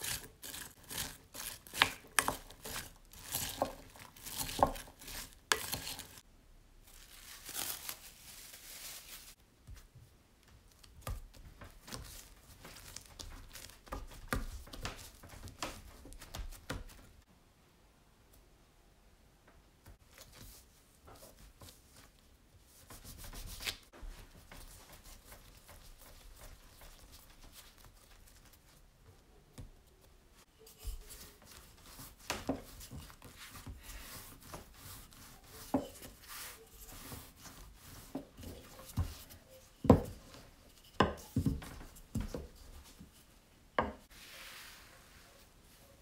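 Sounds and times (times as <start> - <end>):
dough scraper cutting dough: 0.0 - 6.2
rolling pin rubbing on dough: 30.6 - 43.2.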